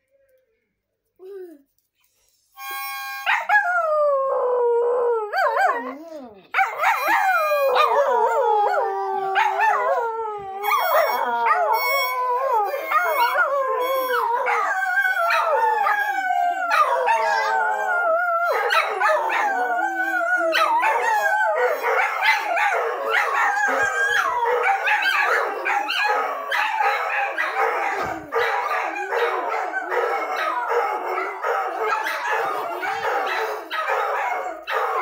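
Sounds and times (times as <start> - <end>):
harmonica: 2.6 - 3.3
dogs howling: 3.4 - 35.0.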